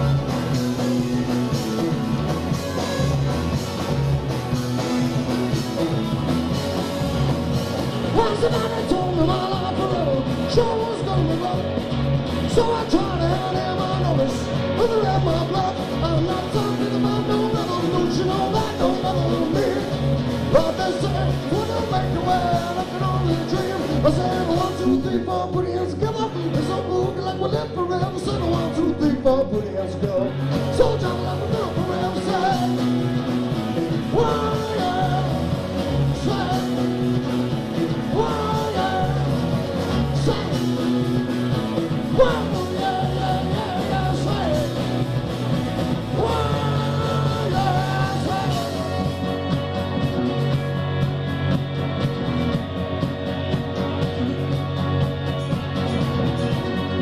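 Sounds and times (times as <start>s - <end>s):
rock band playing live: 0.0s - 57.0s
person singing: 8.1s - 11.8s, 12.4s - 32.9s, 34.0s - 37.0s, 38.0s - 41.0s, 42.0s - 45.0s, 46.1s - 49.2s.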